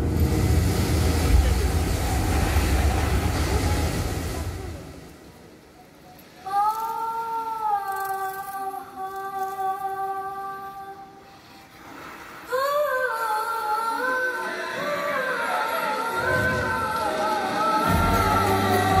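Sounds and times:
voice singing ornamented melody: 0:12.9 - 0:19.0.

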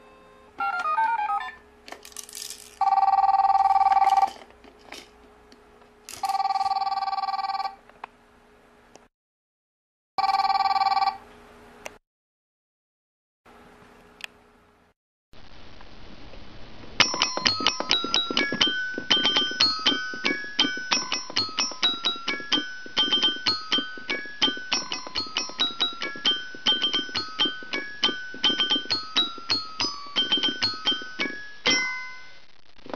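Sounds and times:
toy xylophone tune: 0:17.0 - 0:32.3.

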